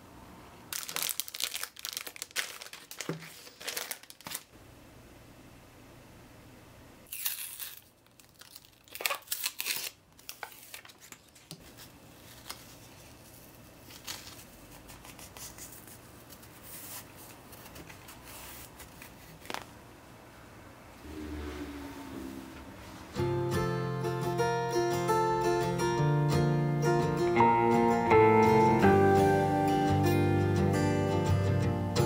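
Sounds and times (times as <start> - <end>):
paper backing crinkling and tearing: 0.7 - 4.5, 7.1 - 19.7.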